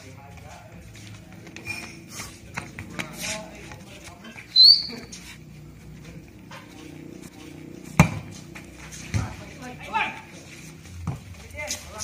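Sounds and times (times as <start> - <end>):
high rising chirp: 4.5 - 5.2
volleyball struck by hand: 8.0 - 8.3.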